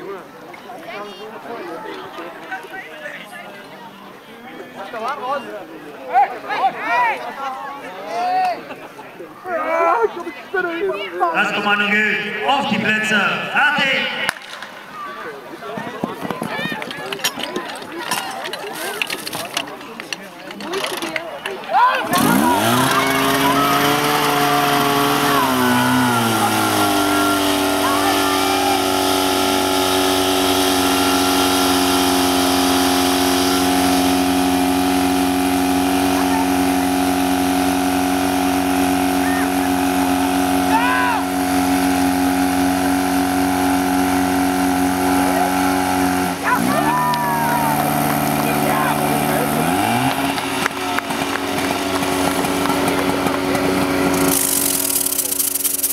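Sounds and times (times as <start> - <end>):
fire pump engine running: 11.2 - 55.9.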